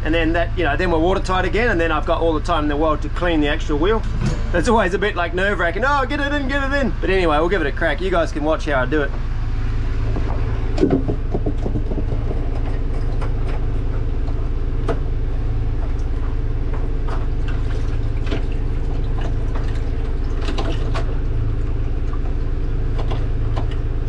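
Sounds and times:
boat engine running: 0:00.0 - 0:24.0
clicks and knocks: 0:10.1 - 0:15.0.

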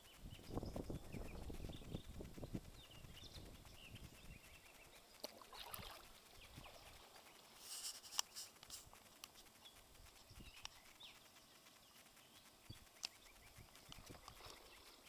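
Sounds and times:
soft rustle: 0:04.4 - 0:15.0
light ticks: 0:07.3 - 0:15.0.

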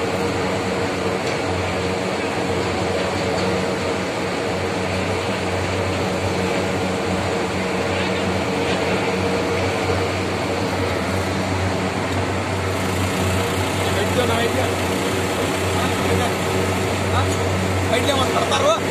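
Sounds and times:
machinery humming with deep throb: 0:00.0 - 0:18.9.

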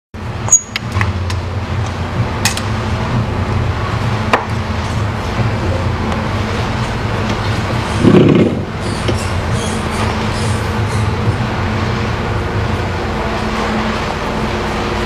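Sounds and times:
steady low hum: 0:00.2 - 0:15.0.

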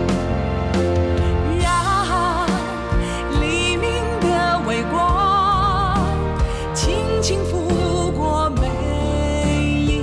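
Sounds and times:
instrumental backing: 0:00.0 - 0:10.0.

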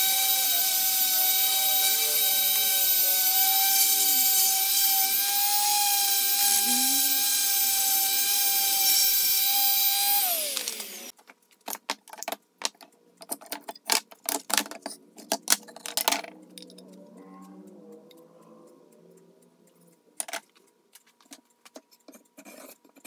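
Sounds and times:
orbital sander running: 0:00.0 - 0:11.1.

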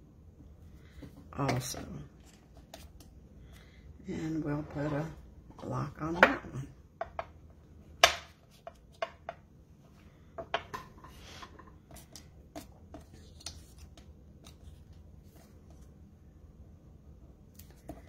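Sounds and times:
paper handling: 0:12.0 - 0:15.9.

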